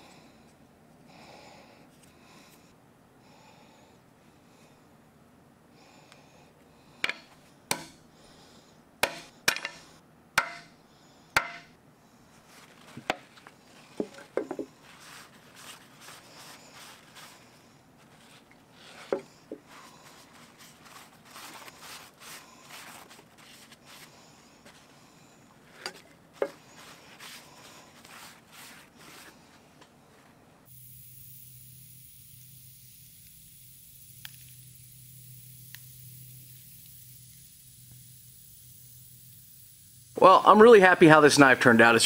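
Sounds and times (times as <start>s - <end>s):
hammer tapping metal pins: 9.0s - 9.8s.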